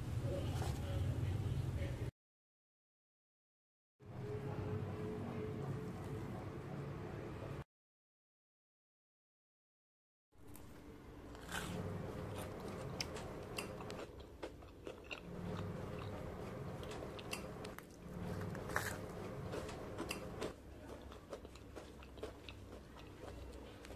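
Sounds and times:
fried fritters crunching: 11.3 - 23.9.

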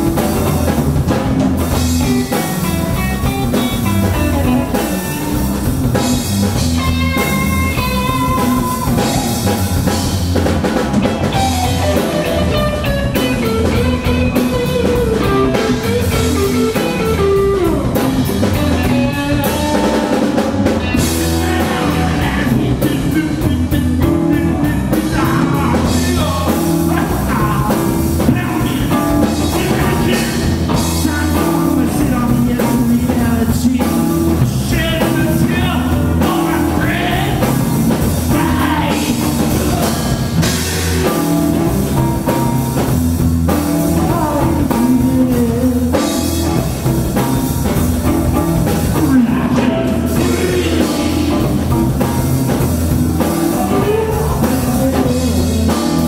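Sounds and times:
drum kit: 0.0 - 56.0
electric bass: 0.0 - 56.0
electric guitar: 0.0 - 56.0.

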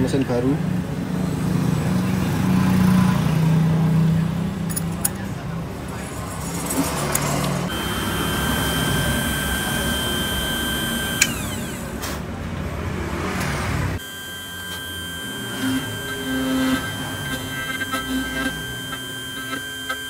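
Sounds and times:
cutter grinding metal key: 6.3 - 12.0, 14.0 - 20.0
motor whining: 7.2 - 12.3, 13.9 - 20.0.

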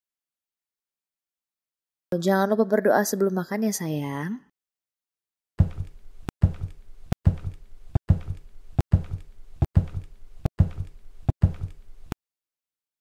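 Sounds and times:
cartoon thud with click: 5.6 - 8.4.

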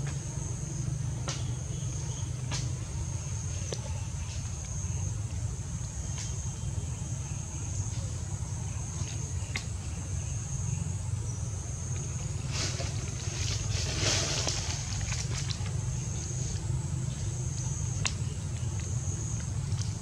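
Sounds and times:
rustling: 12.4 - 15.7.

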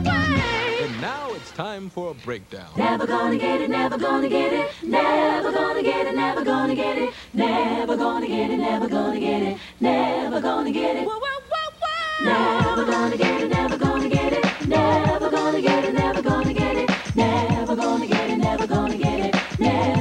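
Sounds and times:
voices singing in harmony: 0.0 - 1.4, 2.8 - 20.0
music beat: 12.2 - 20.0.

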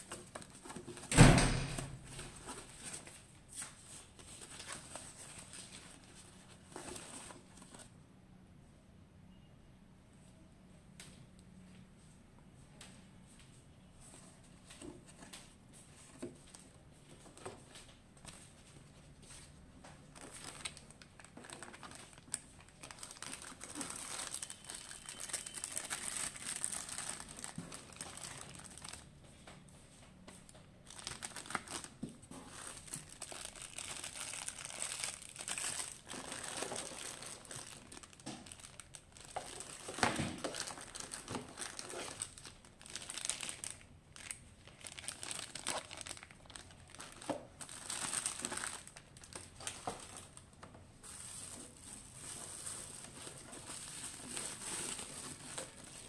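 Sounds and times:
plastic bags crinkling: 0.0 - 7.9, 20.0 - 29.1, 30.8 - 56.0.

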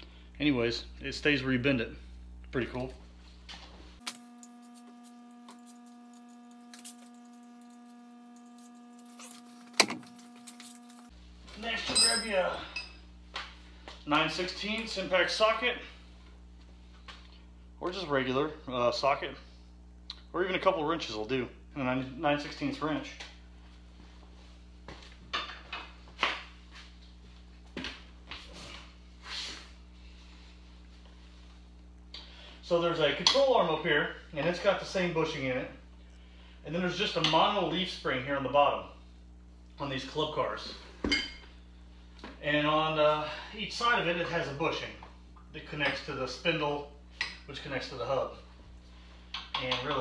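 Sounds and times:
steady electrical hum: 0.0 - 50.0
hand tools clanking: 11.8 - 13.0.

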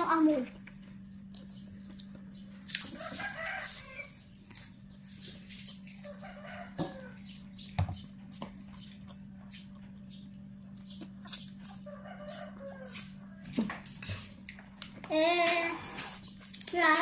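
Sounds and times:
chicken clucking: 10.9 - 14.2.

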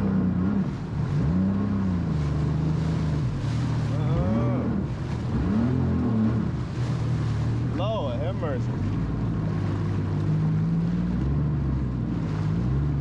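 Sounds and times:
jet ski engine running: 0.0 - 13.0
wind and water noise: 0.0 - 13.0
man moaning: 3.9 - 4.8.

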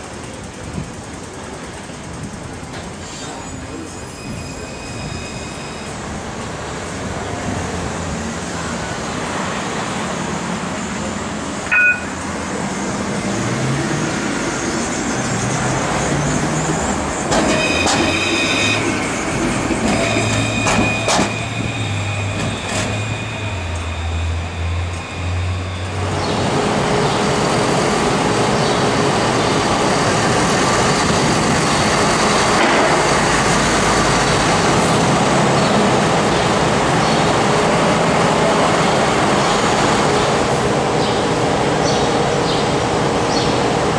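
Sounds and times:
diesel bus running: 0.0 - 43.9
tram motors humming: 0.0 - 43.9
short beep: 11.7 - 12.2.

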